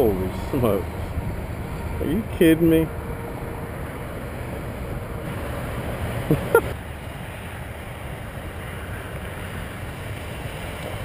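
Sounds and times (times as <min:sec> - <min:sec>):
wind buffeting microphone: 0:00.0 - 0:06.6.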